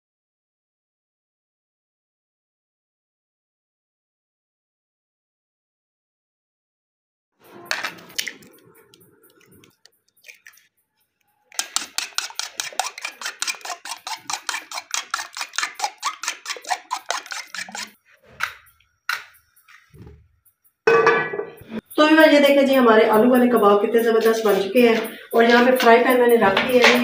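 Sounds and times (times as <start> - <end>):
spoon tapping egg: 11.5 - 17.9
spoon clinking against bowl: 11.5 - 18.0.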